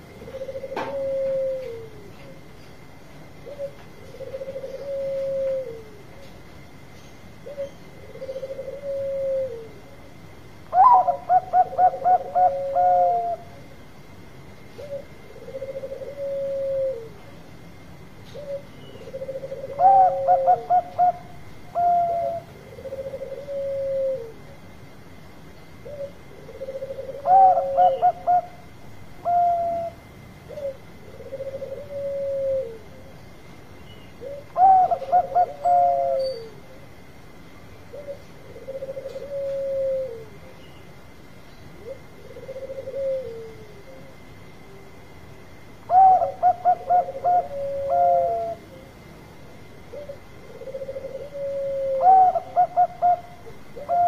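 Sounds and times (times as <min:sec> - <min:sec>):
soft low drawn-out coos: 0:00.0 - 0:02.5, 0:03.3 - 0:06.3, 0:07.4 - 0:13.7, 0:14.7 - 0:17.5, 0:18.3 - 0:25.2, 0:25.8 - 0:33.3, 0:34.1 - 0:37.1, 0:37.7 - 0:40.8, 0:41.7 - 0:45.2, 0:45.8 - 0:54.0
dove staccato coos: 0:00.1 - 0:02.4, 0:03.4 - 0:06.2, 0:10.7 - 0:13.5, 0:18.3 - 0:24.4, 0:25.8 - 0:32.9, 0:34.2 - 0:36.3, 0:37.9 - 0:40.4, 0:45.9 - 0:48.6, 0:49.9 - 0:54.0.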